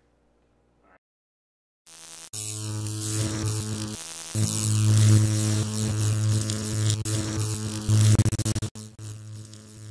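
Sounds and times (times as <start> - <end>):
neon sign electric hum: 1.9 - 9.9
neon sign stuttering clicks: 4.5 - 9.9.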